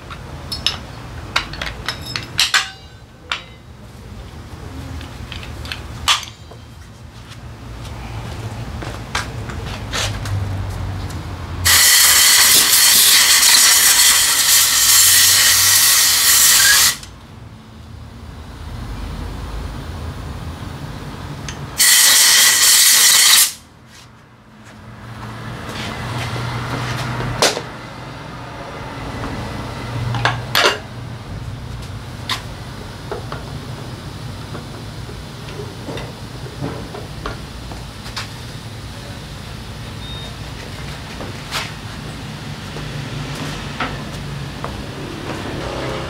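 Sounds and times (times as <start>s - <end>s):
compressed air hissing into tyre: 11.6s - 17.0s, 21.8s - 23.6s.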